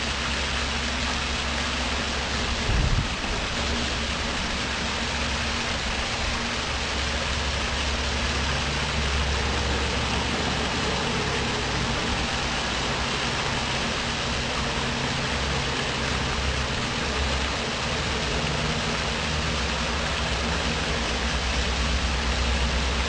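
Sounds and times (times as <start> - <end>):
even hiss: 0.0 - 23.0
low rumble: 1.0 - 15.0.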